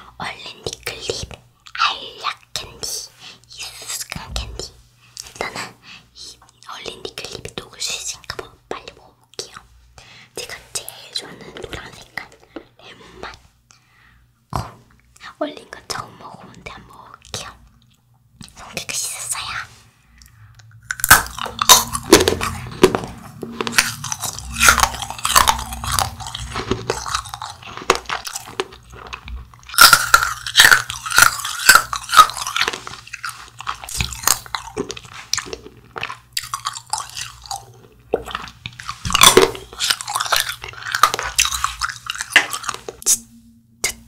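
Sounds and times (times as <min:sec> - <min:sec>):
chewing candy crunching: 0:20.2 - 0:43.2.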